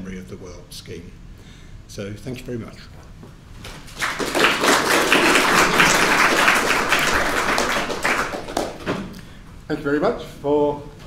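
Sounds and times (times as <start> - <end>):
audience applauding: 3.8 - 9.1.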